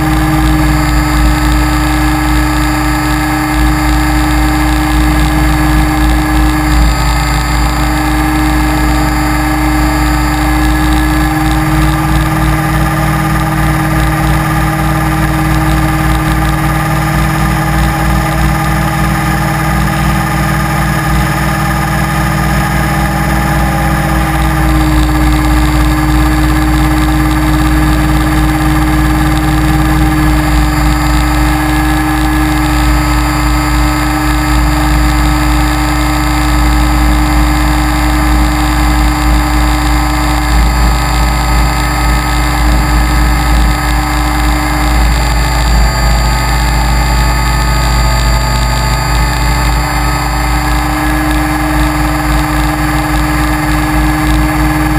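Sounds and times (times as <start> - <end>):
helicopter motor whine: 0.0 - 54.9.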